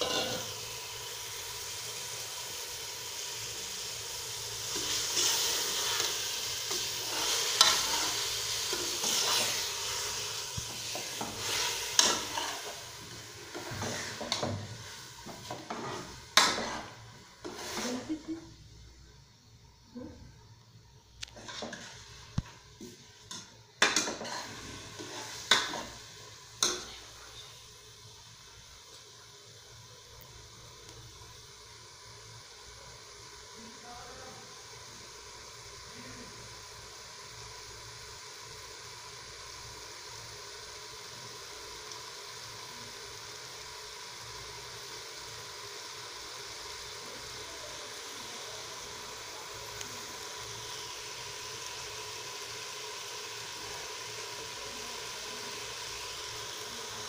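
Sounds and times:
metal ladle scraping a pot: 0:00.0 - 0:00.6, 0:04.7 - 0:10.1, 0:10.8 - 0:12.8, 0:13.5 - 0:14.6, 0:15.3 - 0:18.0, 0:23.9 - 0:26.0
grains sizzling in oil: 0:00.0 - 0:20.0, 0:21.0 - 0:57.0.

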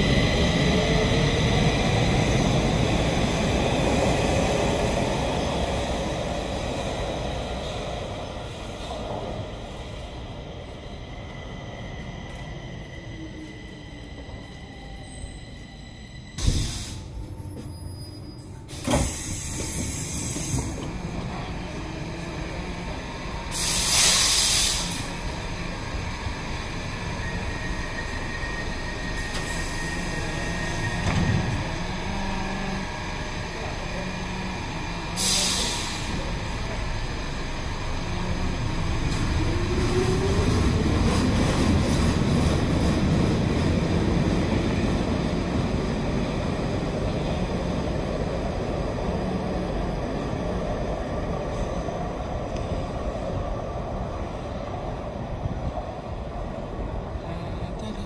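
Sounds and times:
metro train rumbling: 0:00.0 - 0:58.0
compressed air hiss: 0:23.5 - 0:25.1, 0:35.2 - 0:36.1.

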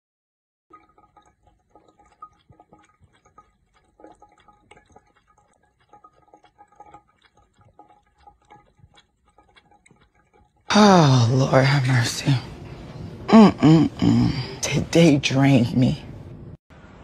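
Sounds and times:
water trickling from tap: 0:00.7 - 0:12.8
cat lapping water: 0:00.7 - 0:13.3.

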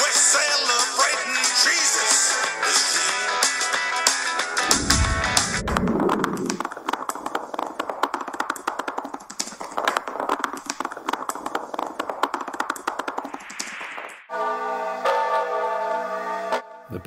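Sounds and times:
short whoosh: 0:04.6 - 0:06.6.

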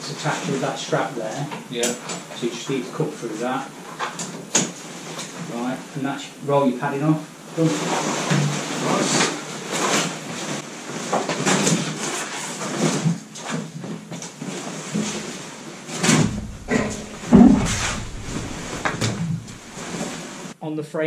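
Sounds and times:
rustling and knocking of tools: 0:16.0 - 0:20.2
heavy thumps: 0:16.1 - 0:20.1.

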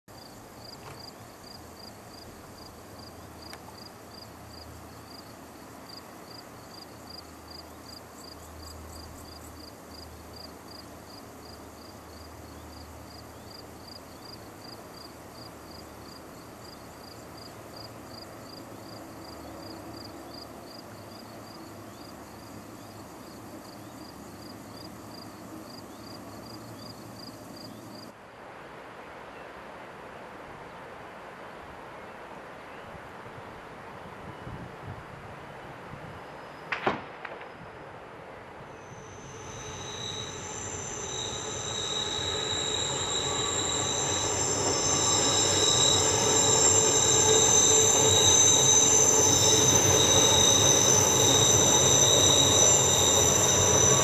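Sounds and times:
insect chirping: 0:00.1 - 0:28.1, 0:38.6 - 0:54.0
faint hiss: 0:00.1 - 0:54.0
low rumble: 0:38.8 - 0:54.0.

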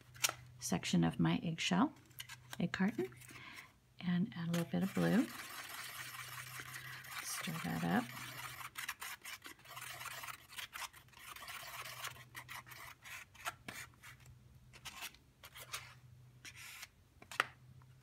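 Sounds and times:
paintbrush scratchy rubbing: 0:04.7 - 0:14.2.

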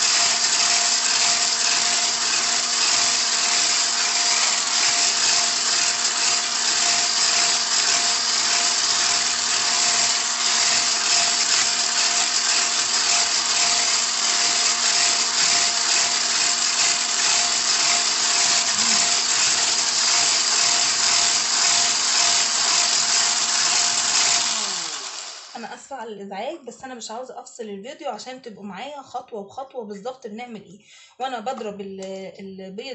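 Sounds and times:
electric hand mixer running: 0:00.0 - 0:25.6.

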